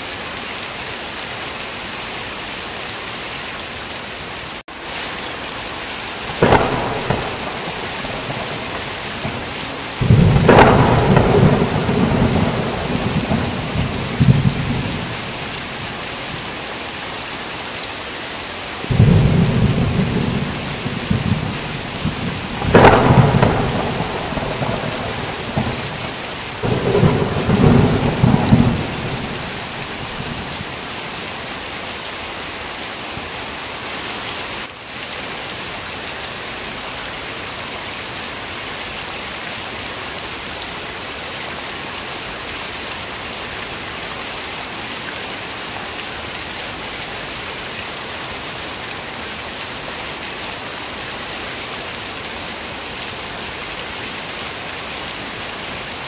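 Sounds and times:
heavy rain hissing: 0.0 - 56.0
thunder rumbling: 6.3 - 16.5, 18.9 - 31.2.

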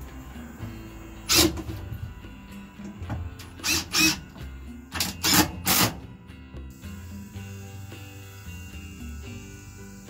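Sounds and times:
background music: 0.0 - 10.0
cordless drill driving screws: 1.3 - 1.6, 3.6 - 4.3.

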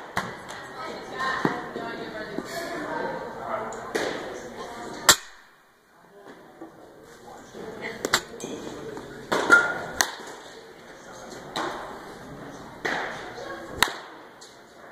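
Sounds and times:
baseball bat hitting balls: 0.0 - 0.6, 3.8 - 4.4, 5.0 - 5.5, 7.9 - 10.5, 11.4 - 11.9, 12.8 - 14.6.

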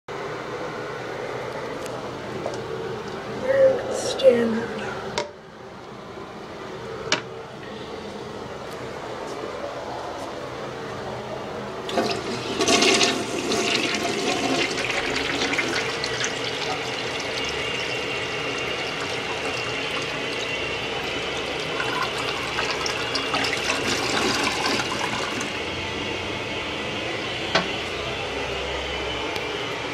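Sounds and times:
toilet flushing: 11.8 - 28.5
toilet tank refilling hiss: 11.9 - 25.7.

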